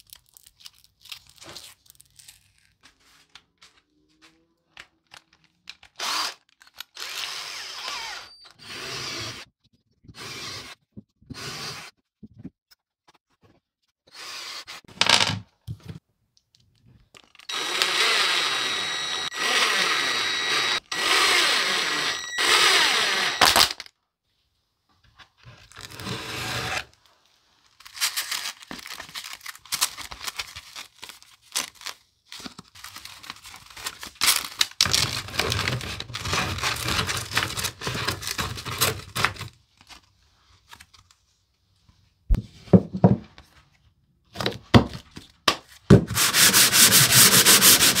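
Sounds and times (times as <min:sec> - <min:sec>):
cordless drill whining: 0:06.0 - 0:06.4, 0:07.0 - 0:09.4, 0:10.2 - 0:10.8, 0:17.4 - 0:23.8, 0:25.9 - 0:26.9
sanding discs clicking and rustling: 0:46.1 - 0:48.0.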